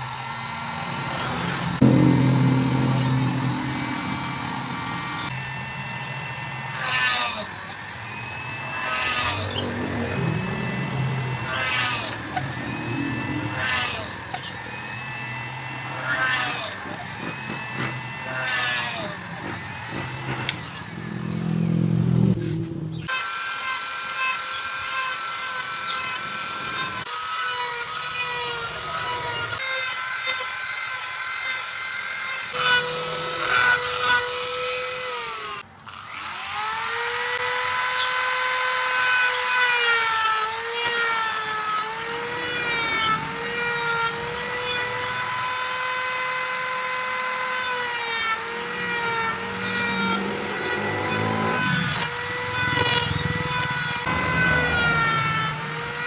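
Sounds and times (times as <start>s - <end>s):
low machine sound: 0.0s - 23.1s, 40.6s - 56.0s
rotary tool whining: 0.0s - 56.0s.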